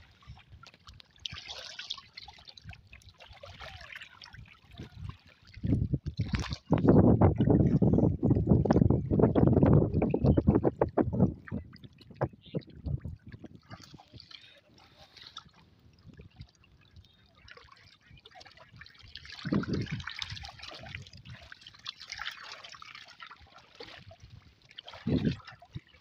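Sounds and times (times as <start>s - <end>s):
water trickling and dripping: 0.0s - 26.0s.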